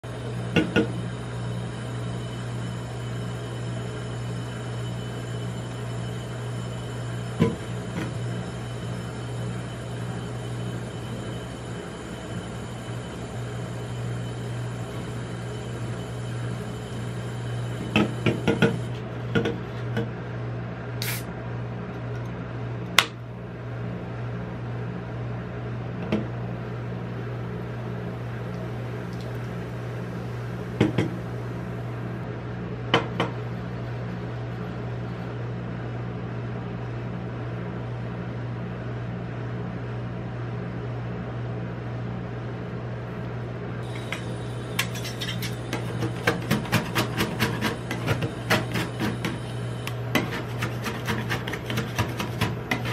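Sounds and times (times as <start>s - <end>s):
refrigeration unit hum: 0.0s - 52.9s
metal spatulas scraping steel plate: 44.8s - 49.4s.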